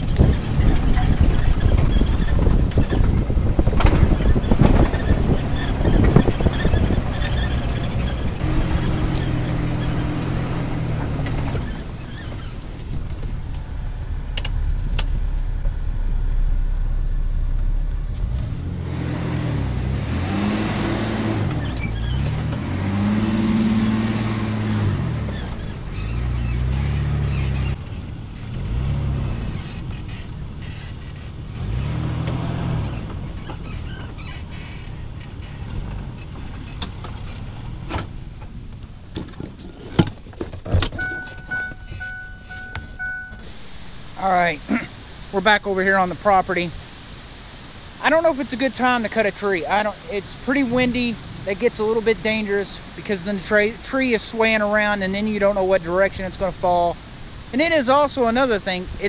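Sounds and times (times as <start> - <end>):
truck engine revving: 0.0 - 39.0
tyre and wind rumble: 0.0 - 59.0.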